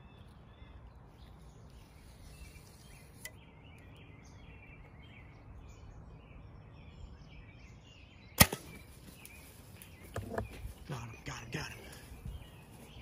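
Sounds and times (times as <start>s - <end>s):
birds chirping: 0.0s - 13.0s
bow shot snap: 8.4s - 8.8s.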